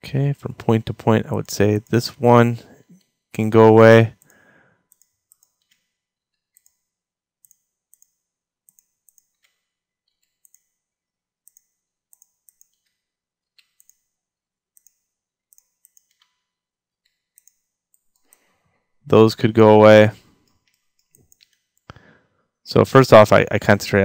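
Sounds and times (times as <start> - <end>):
computer mouse and keyboard clicks: 4.9 - 10.8, 11.4 - 16.4, 17.0 - 18.5, 20.4 - 22.0.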